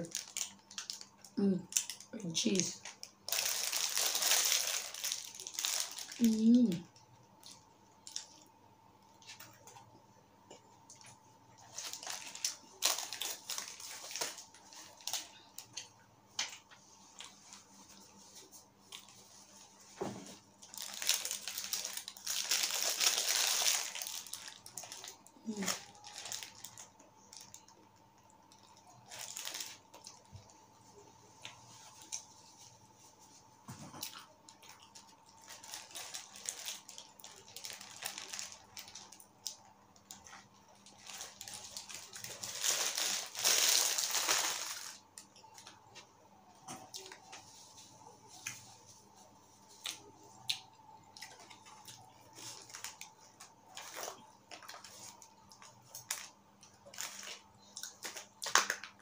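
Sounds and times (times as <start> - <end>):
paper wrapper crinkling: 0.0 - 6.8, 11.6 - 17.4, 20.4 - 27.8, 28.4 - 30.5, 34.0 - 45.8, 51.2 - 59.0.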